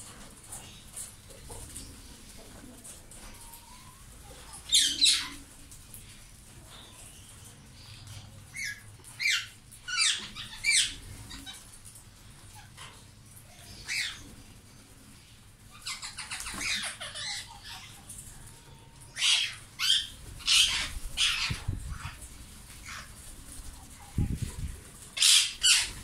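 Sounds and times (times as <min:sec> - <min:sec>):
parakeets squawking: 0:04.6 - 0:05.4, 0:08.5 - 0:11.7, 0:13.7 - 0:14.2, 0:15.7 - 0:18.1, 0:19.1 - 0:22.2, 0:25.2 - 0:26.0.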